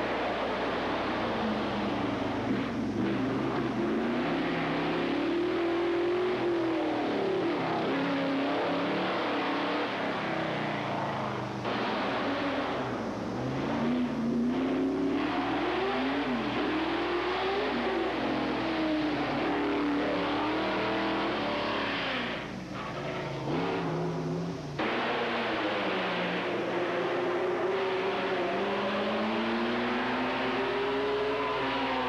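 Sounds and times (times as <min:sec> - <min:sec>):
race car engines at full throttle: 0:00.0 - 0:32.0.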